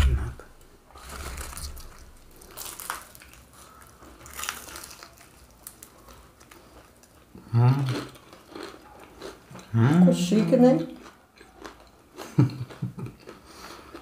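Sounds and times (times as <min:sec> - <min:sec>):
paper crinkling: 0:00.9 - 0:07.2
crisp pastry crackling bites: 0:01.0 - 0:09.7
chewing: 0:01.0 - 0:09.8, 0:10.4 - 0:14.0.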